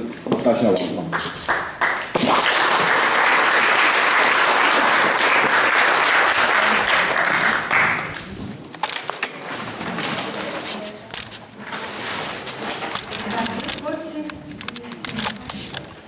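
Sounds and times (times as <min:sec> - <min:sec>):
audience applauding: 0:01.1 - 0:08.3.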